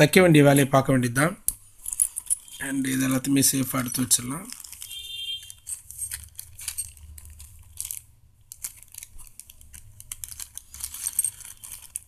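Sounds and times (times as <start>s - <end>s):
plastic bags crinkling: 1.9s - 12.0s.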